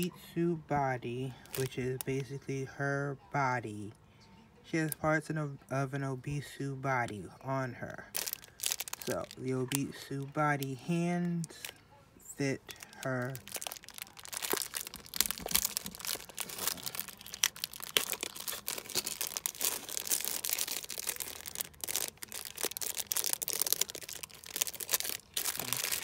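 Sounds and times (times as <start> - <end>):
plastic bag crinkling: 1.4 - 2.4, 7.9 - 11.8, 12.6 - 26.0.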